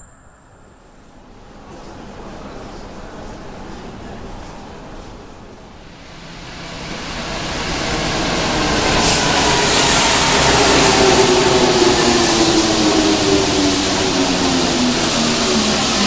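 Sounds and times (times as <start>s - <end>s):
falling whine: 0.0s - 1.8s
train rumble: 0.0s - 16.0s.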